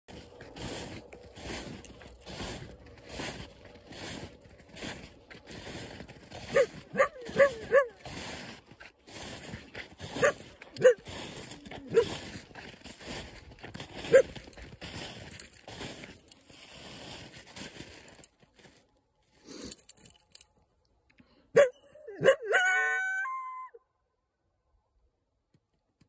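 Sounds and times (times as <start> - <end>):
coyote barking: 6.5 - 8.0, 10.1 - 11.1, 21.6 - 23.7
coyote howl: 21.6 - 23.8.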